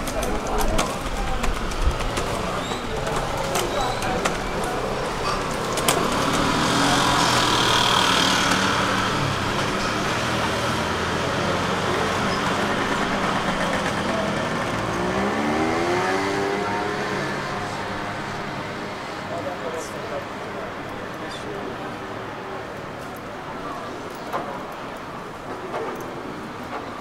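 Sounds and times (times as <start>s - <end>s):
street traffic: 0.0s - 27.0s
vehicle engine accelerating: 1.6s - 19.8s.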